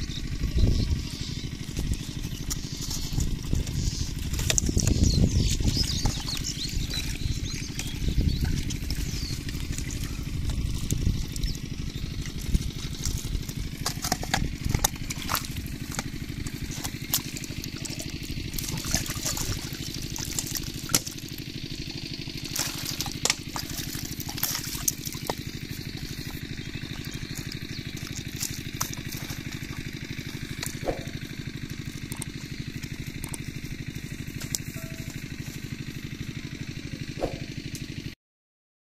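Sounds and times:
engine chugging: 0:00.0 - 0:38.2
water splashing and dripping: 0:05.5 - 0:33.6.

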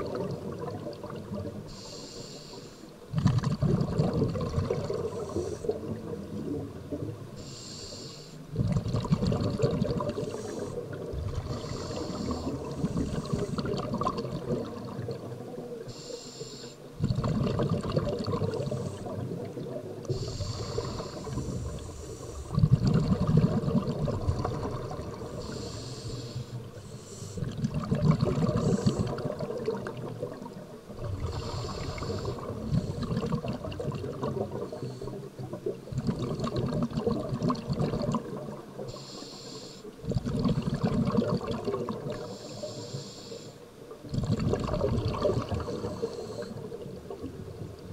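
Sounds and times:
rumbling rush of exhaled bubbles: 0:00.0 - 0:01.6, 0:03.1 - 0:07.2, 0:08.5 - 0:15.7, 0:17.0 - 0:25.6, 0:27.4 - 0:38.8, 0:40.0 - 0:42.3, 0:44.0 - 0:47.9
regulator hissing inhale: 0:01.7 - 0:03.0, 0:05.0 - 0:05.9, 0:07.4 - 0:08.5, 0:10.2 - 0:13.7, 0:15.8 - 0:17.0, 0:18.6 - 0:19.3, 0:20.0 - 0:22.6, 0:25.2 - 0:27.6, 0:28.5 - 0:29.3, 0:31.2 - 0:33.1, 0:34.5 - 0:35.4, 0:38.8 - 0:40.0, 0:42.2 - 0:43.7, 0:45.6 - 0:46.8.

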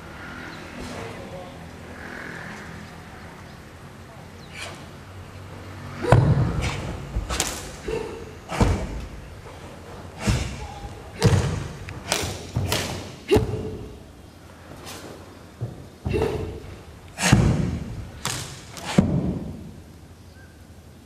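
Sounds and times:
sharp slaps of hand or sleeve: 0:06.2 - 0:07.8, 0:11.2 - 0:13.1.

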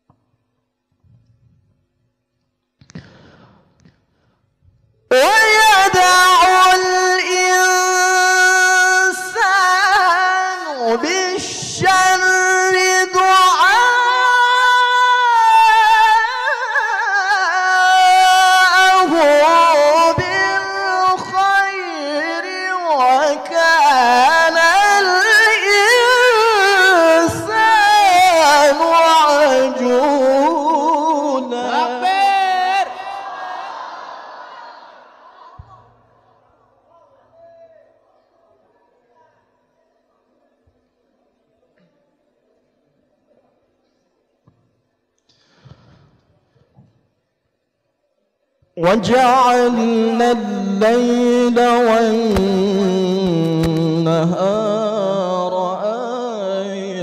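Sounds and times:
man reciting melodically into microphone: 0:05.1 - 0:33.8, 0:48.7 - 0:57.0.

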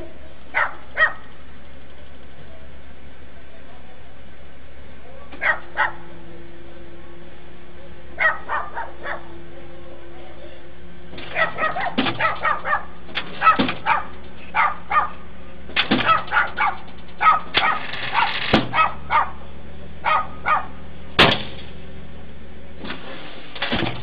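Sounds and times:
vehicle engine idling: 0:00.0 - 0:24.0
dog barking: 0:00.5 - 0:01.3, 0:05.4 - 0:06.1, 0:08.2 - 0:09.3, 0:11.3 - 0:15.2, 0:16.0 - 0:19.4, 0:20.0 - 0:20.8.

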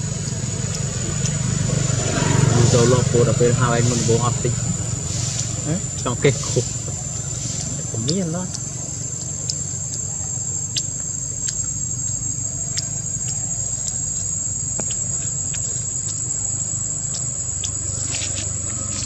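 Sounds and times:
insects droning: 0:00.0 - 0:19.0
low rumble: 0:00.0 - 0:19.0.

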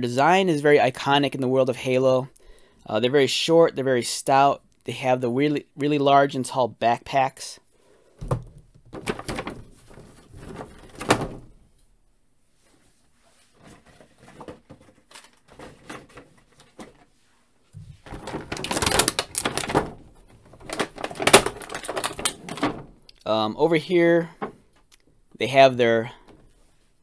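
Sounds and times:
plastic blister pack crinkling: 0:18.0 - 0:23.3.

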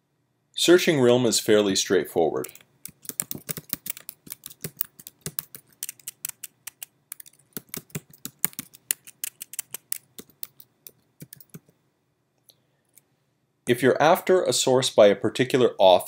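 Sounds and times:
typing on keyboard: 0:02.4 - 0:11.7.

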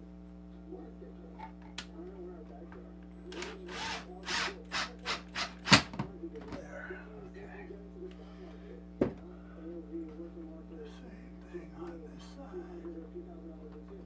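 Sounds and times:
cordless drill biting into wood: 0:03.3 - 0:05.9.

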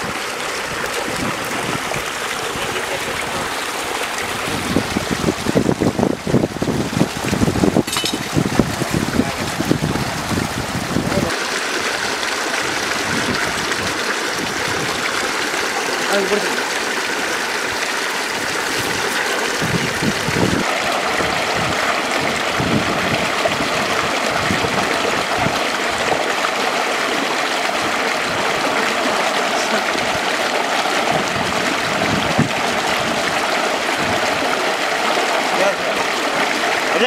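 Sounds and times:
water rushing along channel: 0:00.0 - 0:37.0.

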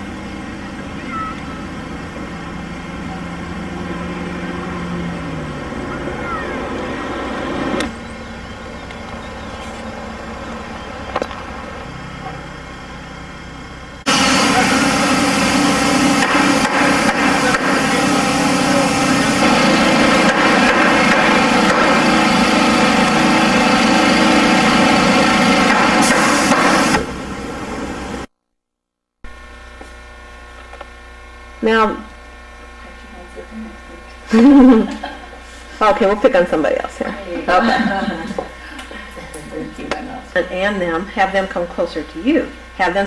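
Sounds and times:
engine running: 0:00.0 - 0:28.3
faint electrical hum: 0:29.3 - 0:43.0.

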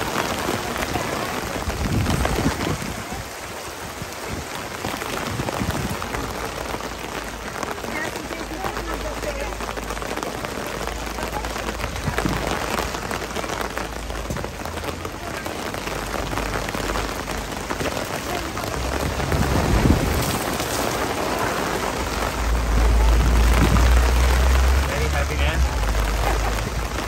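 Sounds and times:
rain on paving and awning: 0:00.0 - 0:27.0
wind buffeting microphone: 0:00.9 - 0:06.9, 0:17.3 - 0:24.8.

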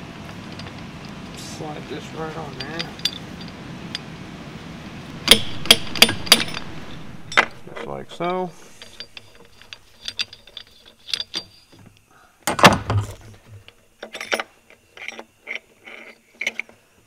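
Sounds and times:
metal clicks and knocks: 0:05.2 - 0:07.9, 0:08.8 - 0:16.8
heavy metal clank: 0:05.2 - 0:11.7.

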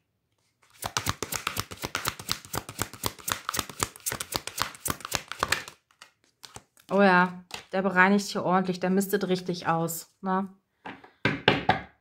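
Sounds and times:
cards being shuffled: 0:00.5 - 0:07.8.

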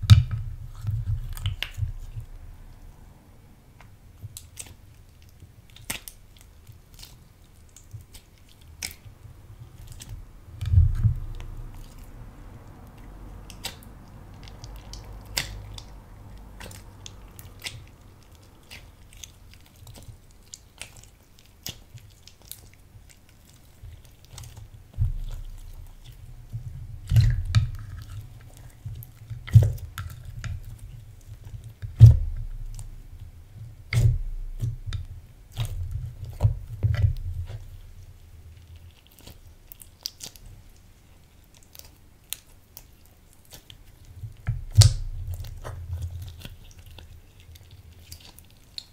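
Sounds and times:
low thuds: 0:10.1 - 0:12.6, 0:31.9 - 0:38.0
sticky clicks and pops: 0:13.5 - 0:22.7.

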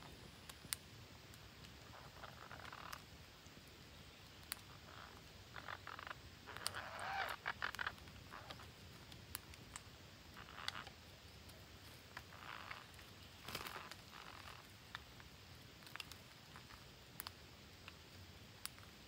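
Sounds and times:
rustling in a shrub: 0:00.0 - 0:19.0
parakeets pecking clicks: 0:04.2 - 0:11.0, 0:15.8 - 0:18.0
parakeet short calls: 0:05.6 - 0:08.5.

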